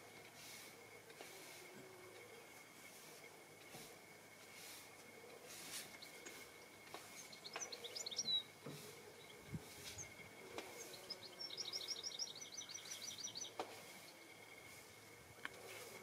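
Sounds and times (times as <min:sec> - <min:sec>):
songbird singing high trill: 0:05.9 - 0:08.6, 0:09.2 - 0:14.2.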